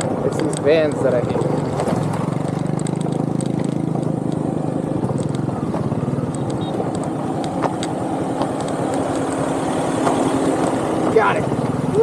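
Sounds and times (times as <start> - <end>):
stones clicking under tyres: 0.0 - 11.4
small motorbike engine running: 0.0 - 12.0.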